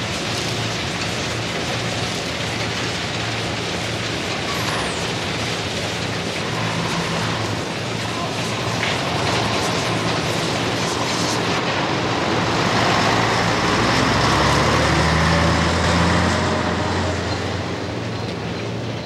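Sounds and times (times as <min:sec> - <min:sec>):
heavy industrial machinery din: 0:00.0 - 0:19.0.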